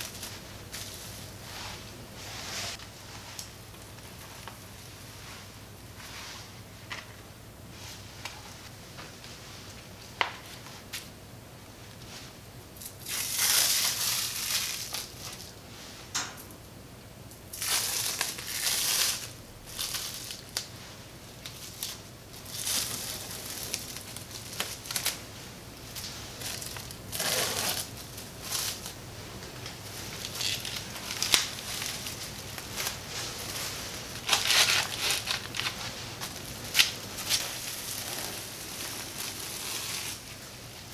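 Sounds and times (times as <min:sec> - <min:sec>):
cling film crinkling: 0:13.0 - 0:15.5, 0:17.5 - 0:20.8, 0:21.4 - 0:25.3, 0:25.9 - 0:40.9.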